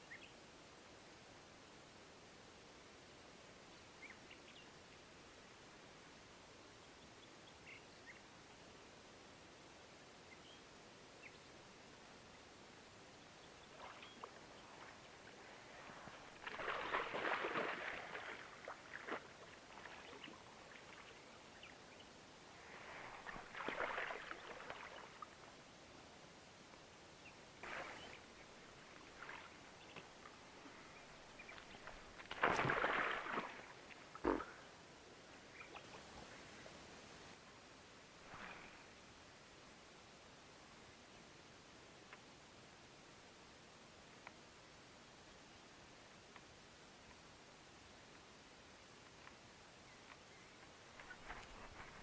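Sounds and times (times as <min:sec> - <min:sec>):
water splashing by boat: 0:16.2 - 0:21.0, 0:31.4 - 0:34.3.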